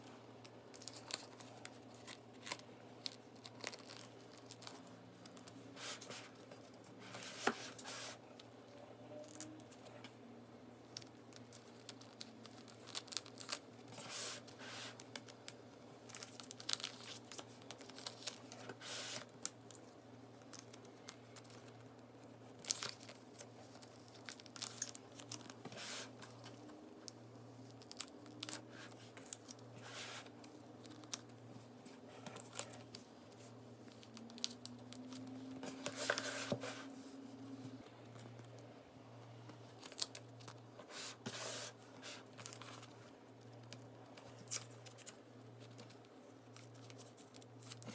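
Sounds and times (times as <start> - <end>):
plastic sleeves crinkling: 0.4 - 8.2, 10.9 - 36.9.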